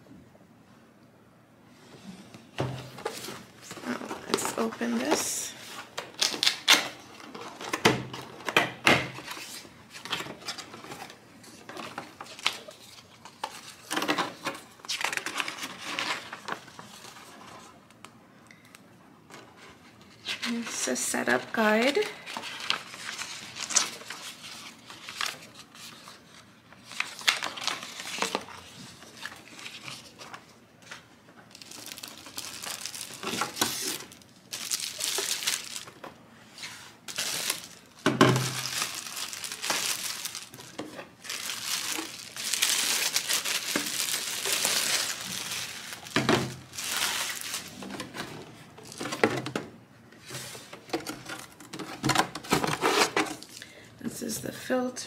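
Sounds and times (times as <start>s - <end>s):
plastic bag crinkling: 3.0s - 8.4s, 31.5s - 36.2s, 37.0s - 48.2s
paper leaflets rustling: 19.6s - 49.3s.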